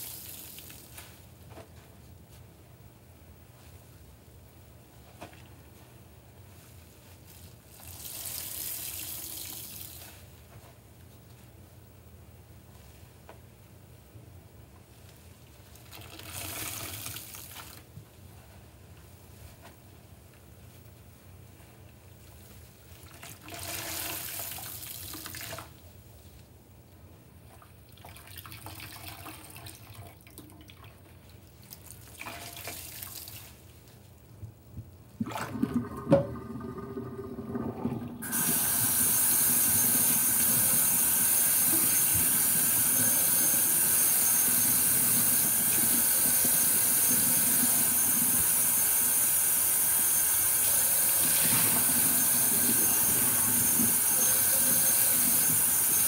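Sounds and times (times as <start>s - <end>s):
tap running into sink: 35.6s - 36.5s.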